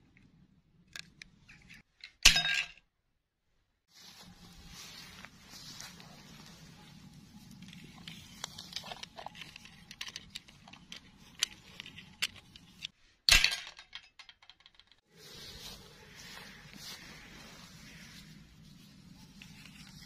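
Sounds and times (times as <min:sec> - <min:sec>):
plastic toys rustling and clicking: 0:07.4 - 0:12.9.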